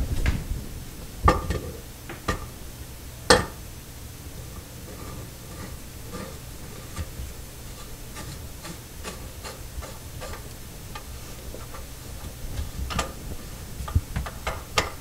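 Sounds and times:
clicks and taps of drain parts: 3.3 - 3.6, 13.8 - 15.0.

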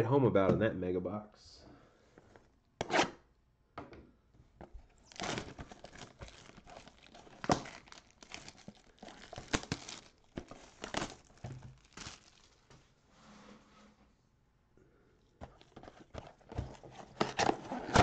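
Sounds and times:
plastic wrap rustling and snapping: 4.9 - 12.8, 15.4 - 18.0.

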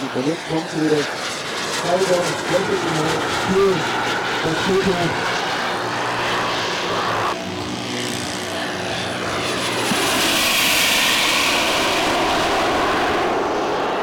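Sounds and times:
model jet turbines passing: 0.0 - 14.0.

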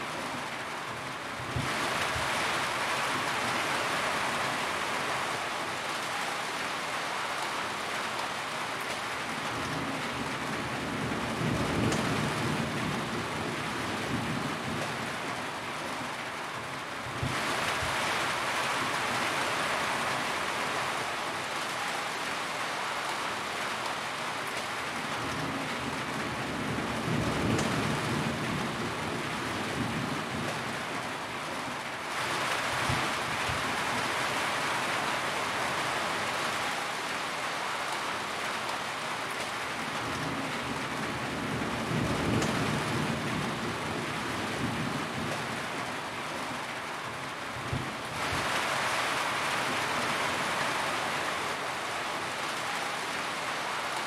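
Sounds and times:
rain on a metal roof: 0.0 - 54.0.

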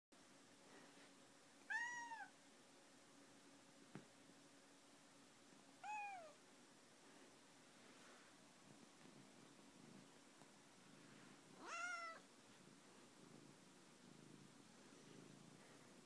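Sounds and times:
cat meowing: 1.7 - 2.3, 5.8 - 6.4, 11.6 - 12.2.

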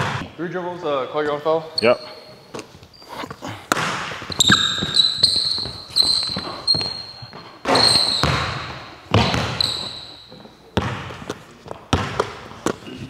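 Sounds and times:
sneaker squeaks: 1.7 - 11.3, 11.9 - 13.0
basketball bouncing on hardwood: 3.7 - 10.0, 10.8 - 12.4.

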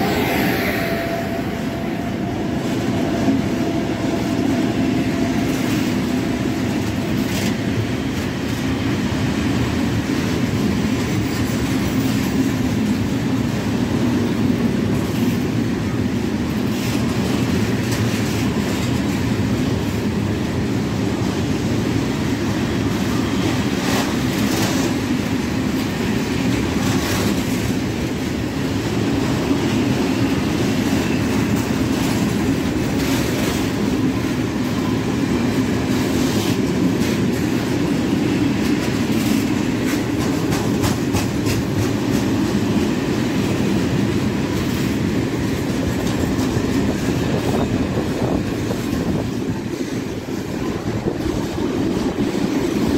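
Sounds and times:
rumble of train wheels on rails: 0.0 - 52.9
wheels clacking over rail joints: 36.0 - 52.9.

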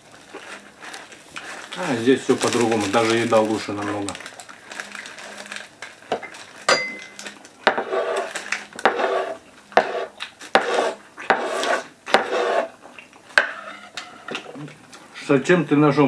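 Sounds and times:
knife scraping wooden tabletop: 7.7 - 12.7.

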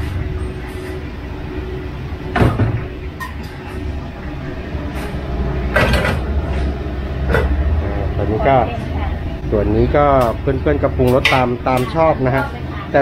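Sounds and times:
gas burner rumble: 0.0 - 13.0
kitchen clatter: 2.3 - 3.9, 4.9 - 7.7, 11.0 - 12.6.

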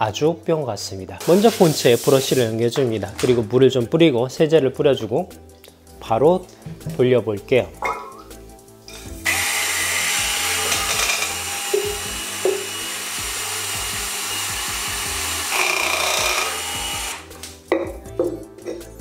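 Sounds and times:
power scrubber spinning: 9.2 - 17.3.

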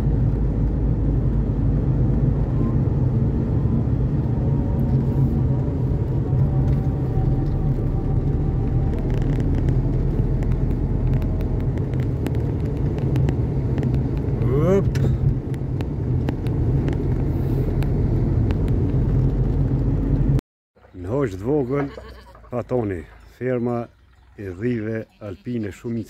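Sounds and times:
car engine hum: 0.0 - 21.7
tyre rumble: 5.0 - 20.4.

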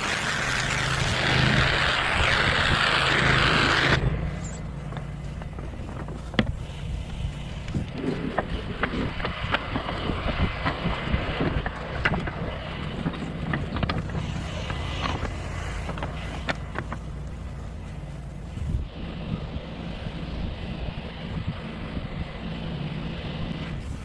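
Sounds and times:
pressure washer engine drone: 0.0 - 24.0
footsteps on roof tiles: 4.6 - 18.0.

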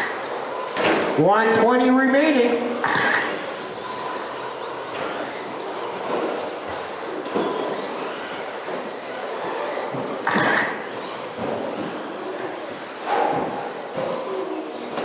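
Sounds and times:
electric toy car motors whining: 0.0 - 1.2, 2.8 - 15.0.

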